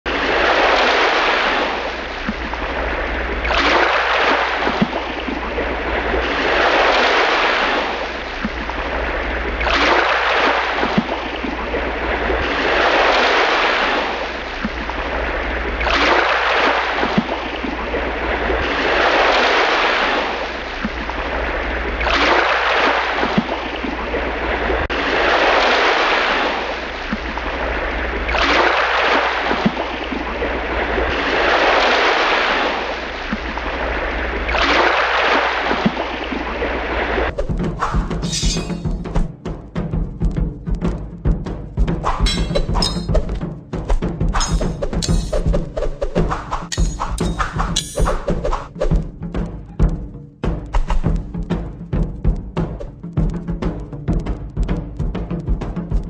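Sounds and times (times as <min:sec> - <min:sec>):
rushing surf-like water: 0:00.1 - 0:39.3.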